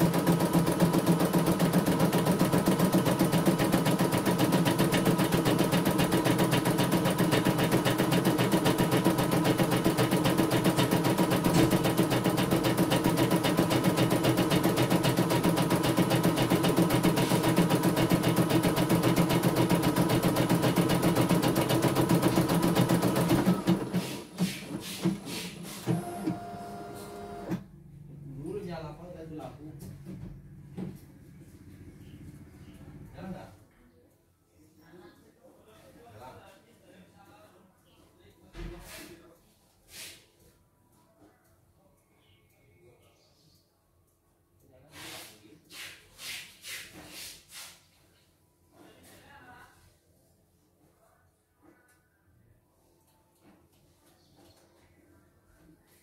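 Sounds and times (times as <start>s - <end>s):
embroidery machine stitching: 0.0s - 27.6s.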